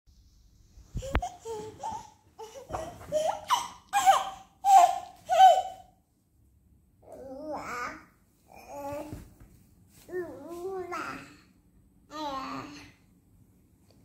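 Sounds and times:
baby laughing and squealing: 1.0s - 5.9s.

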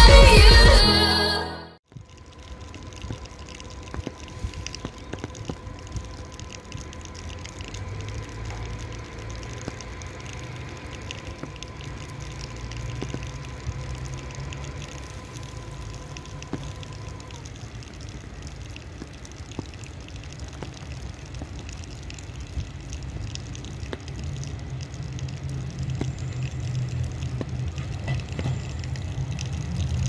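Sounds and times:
steady high tone: 0.0s - 1.8s
rain falling and dripping: 1.8s - 30.0s.

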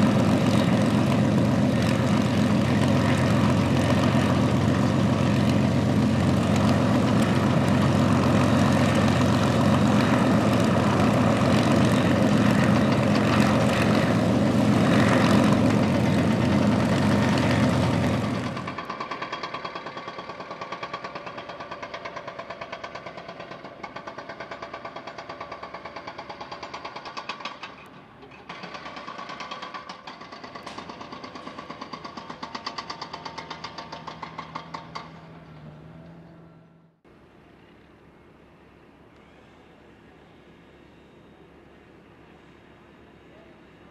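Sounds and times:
piston aircraft engine running: 0.0s - 43.9s
jackhammer hammering: 17.9s - 27.7s, 28.5s - 35.2s.

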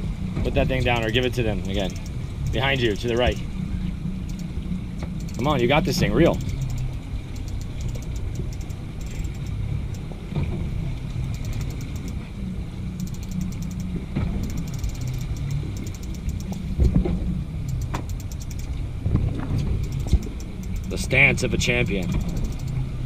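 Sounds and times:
boat engine rumble: 0.0s - 23.0s
fishing reel ticking: 0.8s - 3.5s, 4.2s - 10.1s, 11.1s - 12.3s, 12.9s - 16.8s, 17.6s - 18.9s, 19.5s - 22.9s.

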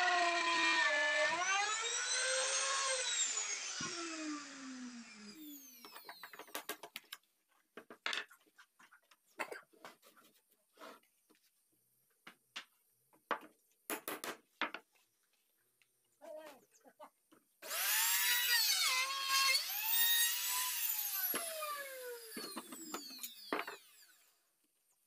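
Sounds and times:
electric router whining: 0.0s - 6.5s, 17.6s - 24.3s.

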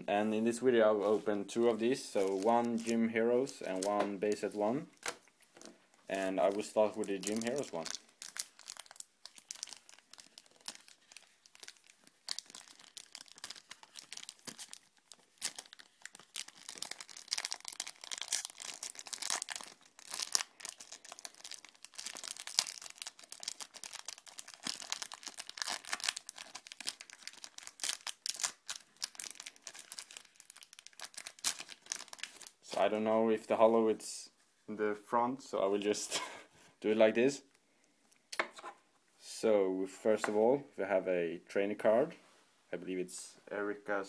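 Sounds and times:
foil wrapper crinkling and tearing: 6.4s - 32.6s.

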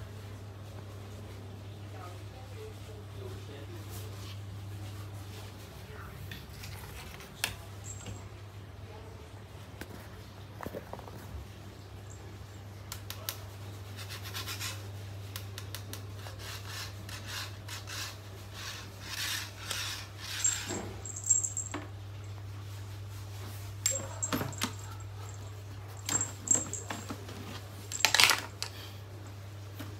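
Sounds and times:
plastic scoop clicks and rustles: 27.9s - 28.7s.

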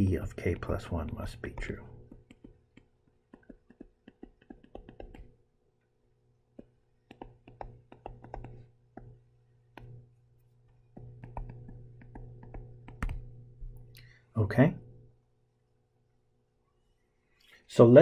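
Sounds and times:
low electrical hum: 0.0s - 18.0s
stylus tapping on tablet screen: 1.5s - 5.4s, 6.5s - 13.8s.

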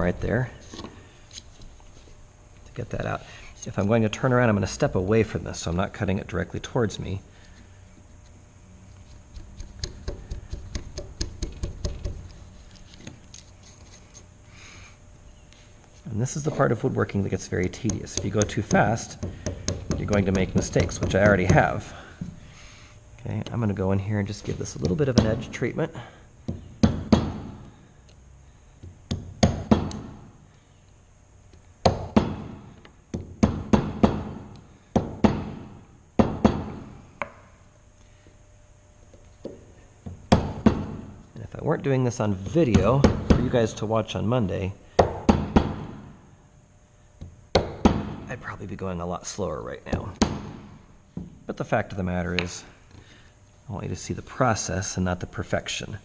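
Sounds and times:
chisel paring wood: 9.3s - 12.3s, 17.6s - 21.8s, 26.5s - 27.7s, 28.8s - 30.2s.

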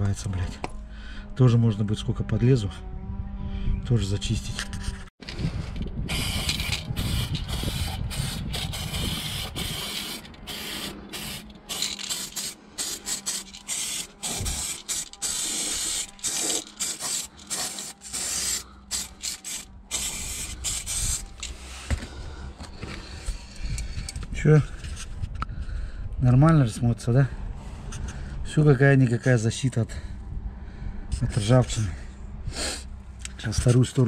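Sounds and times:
aerosol can spraying: 6.1s - 21.6s.

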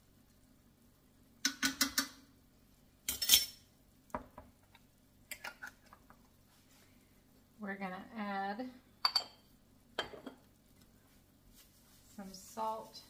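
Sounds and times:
metal spoon tapping on pan: 1.4s - 2.2s.

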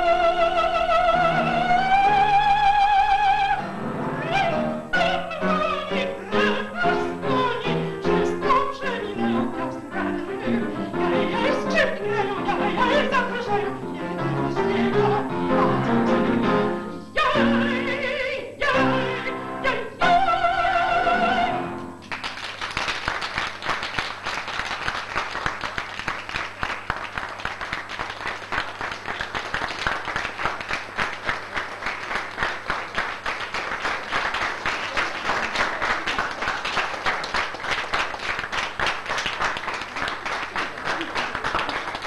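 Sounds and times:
woman singing operatic note: 0.0s - 21.8s
audience applauding: 22.0s - 42.0s.

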